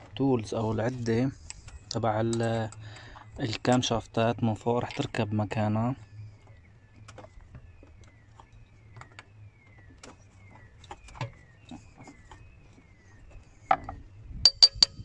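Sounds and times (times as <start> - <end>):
low steady hum: 0.0 - 15.0
small metallic clicks and taps: 1.4 - 3.9
metal tool knock: 14.5 - 15.0.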